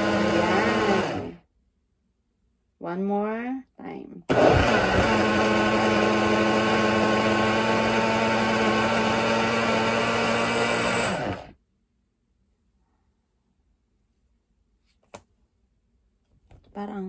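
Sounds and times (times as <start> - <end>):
blender motor running: 0.0 - 1.4, 4.3 - 11.6.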